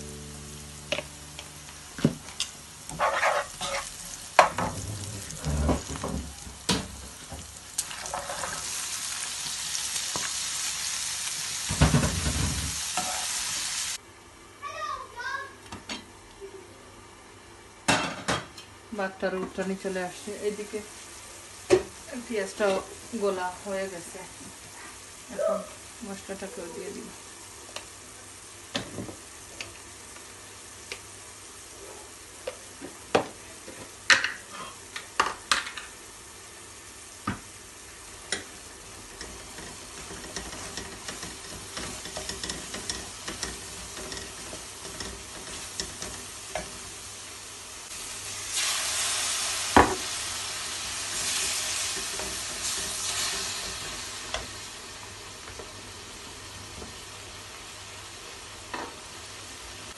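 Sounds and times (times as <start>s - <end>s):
onions sizzling in a pan: 0.0s - 14.3s, 17.0s - 59.9s
wooden spoon knocking and scraping pan: 39.2s - 46.8s.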